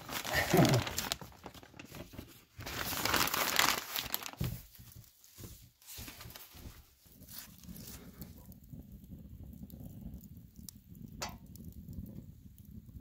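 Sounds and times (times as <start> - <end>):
paper crinkling and rustling: 0.0 - 8.3.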